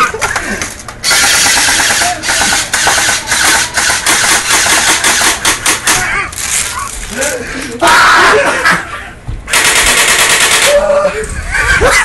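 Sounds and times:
airsoft rifles firing full auto: 1.0s - 6.1s, 9.5s - 11.0s.

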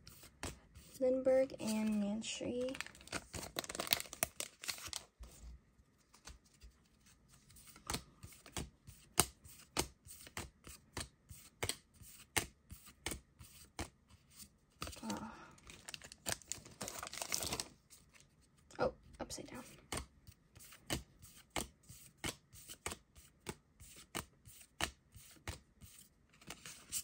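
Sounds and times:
foil wrapper tearing and crinkling: 2.6s - 5.1s, 15.0s - 17.7s.

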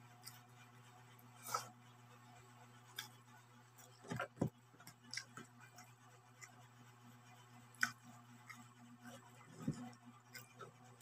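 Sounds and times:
faint steady hum: 0.0s - 11.0s
person eating and chewing: 1.3s - 1.8s, 3.8s - 6.6s, 7.6s - 11.0s.

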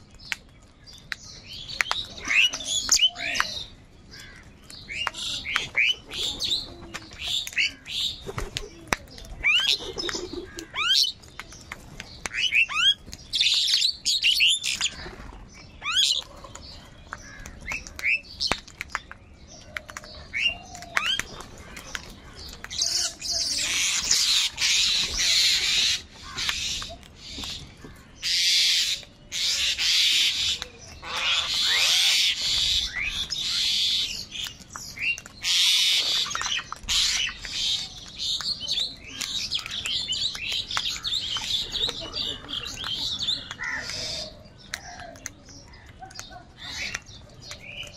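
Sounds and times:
crows calling: 2.1s - 6.6s, 9.4s - 11.2s, 15.8s - 18.2s, 20.2s - 38.4s, 39.3s - 47.9s.

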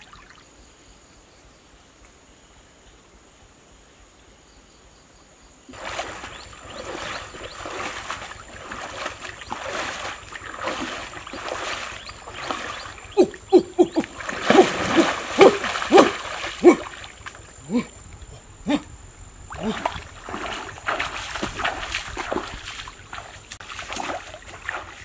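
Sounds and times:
loud splashes with hollow plops: 5.7s - 17.9s, 19.4s - 25.0s
river water splashing: 5.7s - 25.0s.

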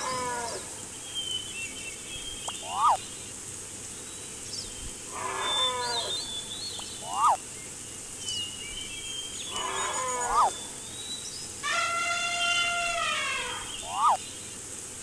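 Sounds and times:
falling multi-tone animal calls: 0.0s - 0.9s, 2.5s - 3.0s, 5.1s - 7.4s, 9.5s - 10.8s, 11.6s - 14.2s
high bird twittering: 2.2s - 3.1s, 5.2s - 7.4s, 9.4s - 10.7s, 11.7s - 14.2s.

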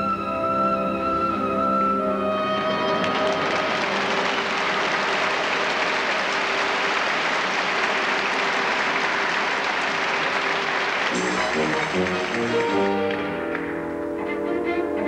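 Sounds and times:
orchestra playing: 0.0s - 7.6s, 10.6s - 15.0s
audience applauding: 2.4s - 13.9s.

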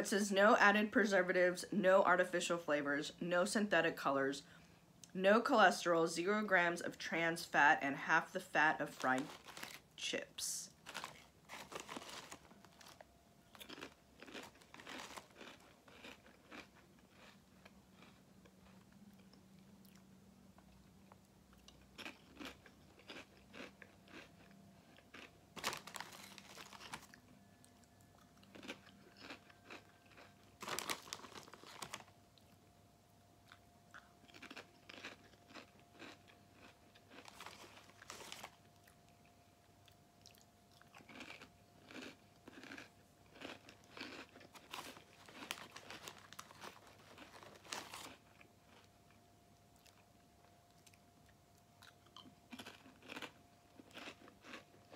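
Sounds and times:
crunching and chewing chips: 6.8s - 32.7s, 33.4s - 54.9s
chip bag rustling: 8.8s - 17.4s, 25.1s - 27.2s, 28.5s - 32.2s, 34.3s - 38.7s, 43.4s - 48.8s.

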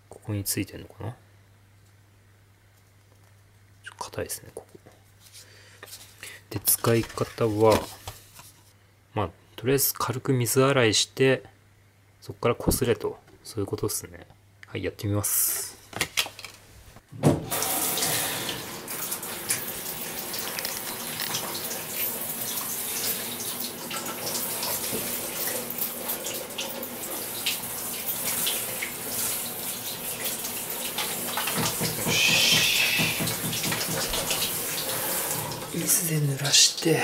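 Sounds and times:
shower spraying water on glass: 17.4s - 36.3s.

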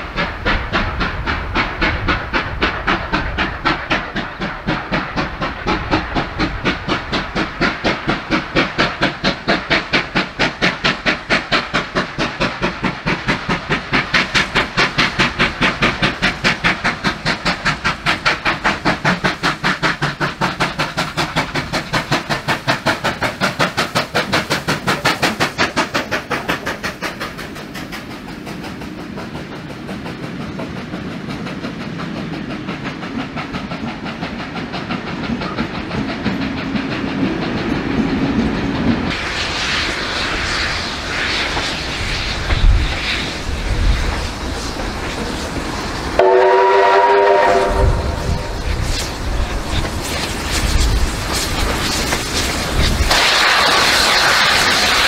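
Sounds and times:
rumble and clatter of carriages: 0.0s - 39.7s
steam hissing: 0.0s - 55.0s
steam locomotive exhaust beating: 0.0s - 55.0s.

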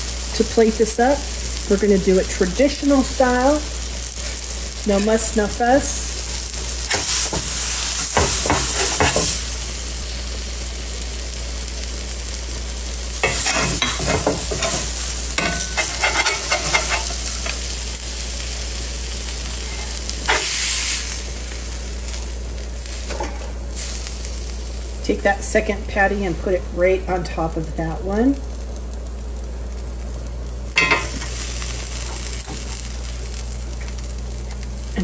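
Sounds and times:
burger patties sizzling: 0.0s - 35.0s
metal spatula scraping iron: 13.2s - 17.5s.

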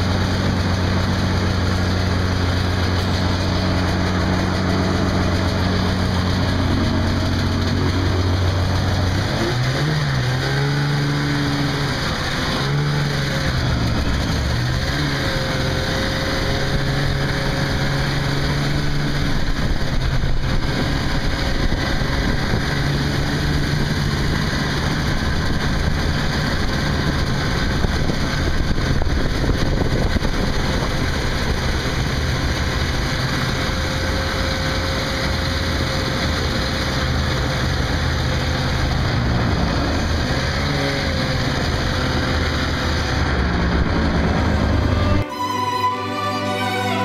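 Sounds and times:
snowmobile engine running: 0.0s - 47.0s.

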